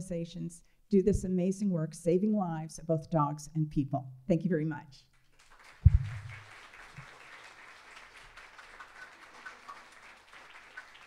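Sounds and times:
audience applauding: 5.3s - 11.0s
low thump: 5.8s - 6.4s.

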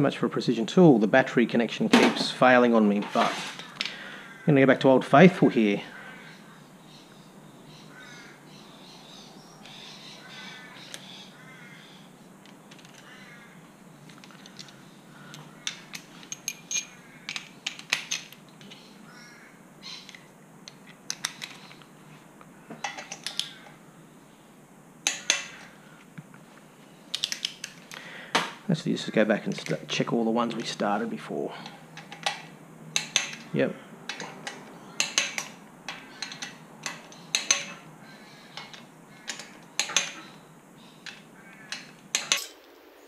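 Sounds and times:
torque wrench clicking: 33.0s - 33.4s, 34.1s - 37.8s.

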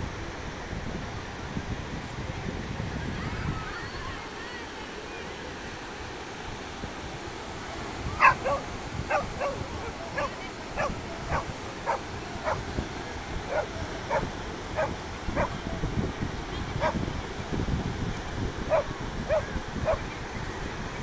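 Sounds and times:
surf rushing: 0.0s - 21.0s
wind: 0.0s - 21.0s
dog barking: 8.2s - 12.6s, 13.5s - 15.6s, 18.7s - 20.0s.

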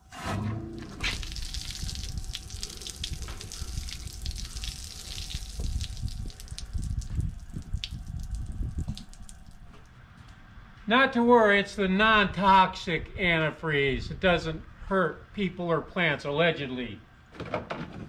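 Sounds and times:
liquid gushing from drain valve: 0.0s - 9.8s.

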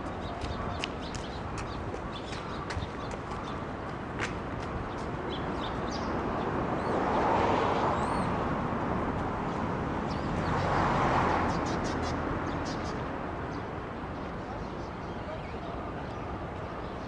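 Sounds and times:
small birds chirping: 0.0s - 7.0s
traffic passing: 0.0s - 17.0s.

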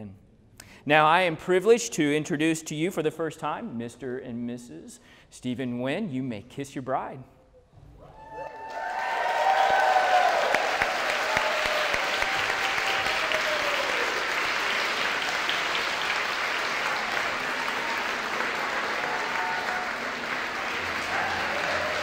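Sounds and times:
crowd applauding: 8.2s - 22.0s.

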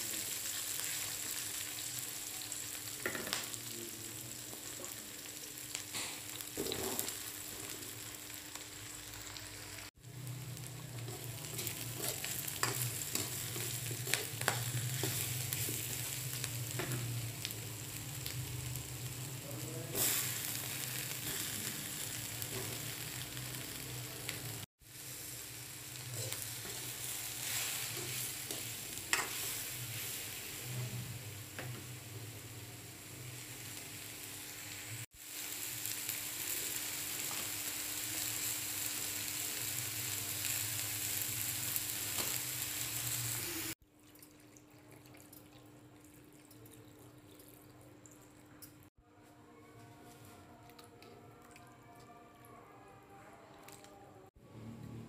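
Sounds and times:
food sizzling in hot oil: 0.0s - 43.8s.

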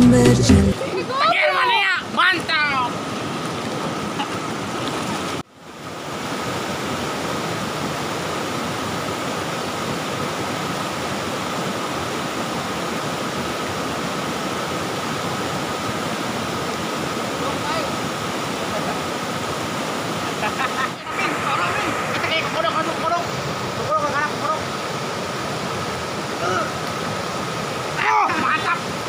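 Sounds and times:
river rushing over rocks: 0.7s - 29.0s.

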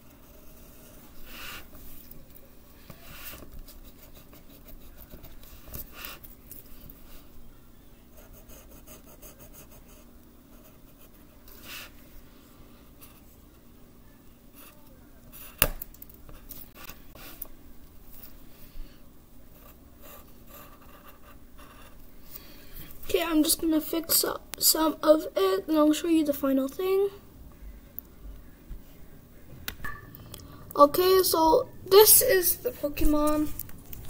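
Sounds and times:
pencil scratching on paper: 0.0s - 1.8s, 3.0s - 6.2s, 8.1s - 11.9s, 19.5s - 22.0s.

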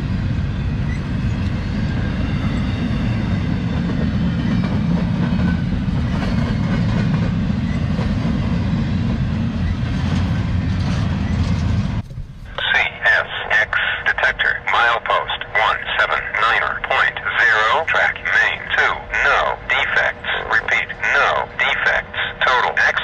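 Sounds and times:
train wheels rumbling on rails: 0.0s - 13.5s.

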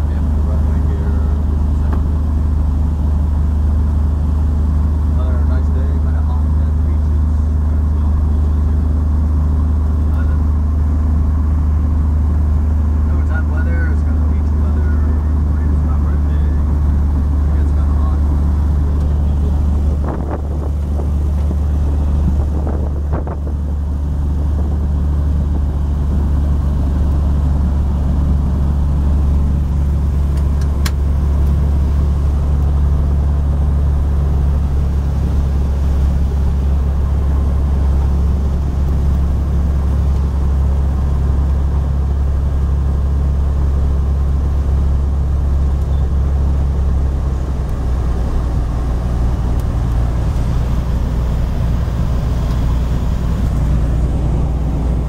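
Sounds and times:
propeller airplane engine drone: 0.0s - 55.0s.

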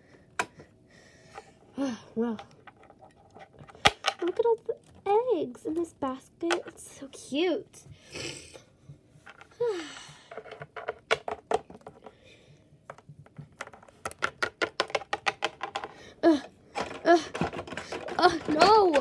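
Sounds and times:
plastic figurines tapping on tabletop: 13.3s - 16.0s.

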